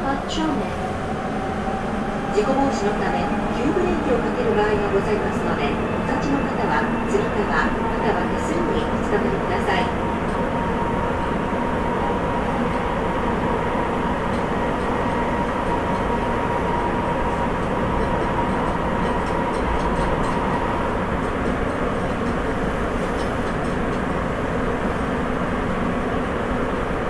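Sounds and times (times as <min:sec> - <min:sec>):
subway train rumble: 0:00.0 - 0:27.0.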